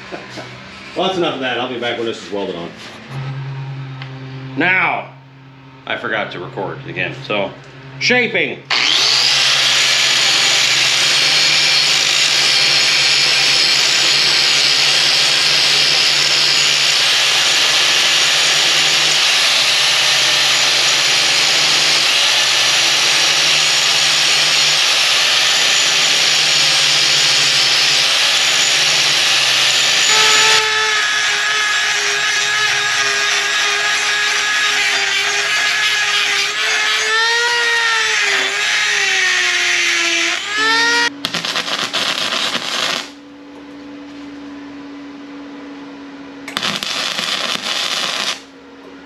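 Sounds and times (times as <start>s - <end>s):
rotary tool grinding steel: 8.7s - 43.1s, 46.6s - 48.4s
angle grinder grinding metal: 8.7s - 43.2s, 46.5s - 48.5s.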